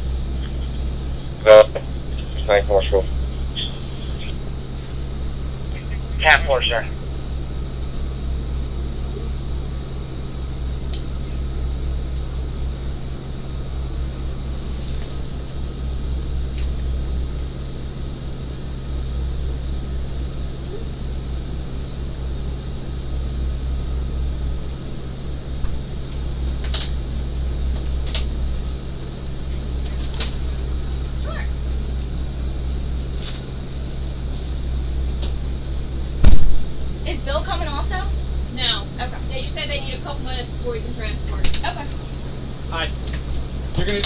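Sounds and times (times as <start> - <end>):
engine and ventilation drone: 0.0 - 44.0.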